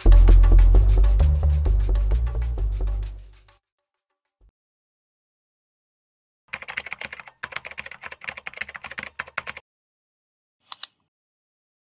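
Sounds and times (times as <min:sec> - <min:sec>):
keyboard typing: 0:06.5 - 0:09.6
mouse clicks: 0:10.6 - 0:11.1.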